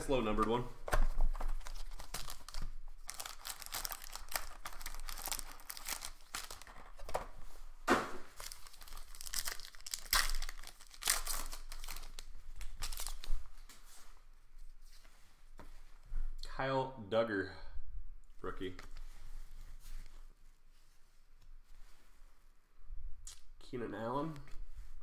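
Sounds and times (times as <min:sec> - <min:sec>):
foil card packs crinkling: 0:00.1 - 0:07.1, 0:08.3 - 0:13.5
foil packs tearing: 0:01.6 - 0:06.9, 0:08.3 - 0:13.2.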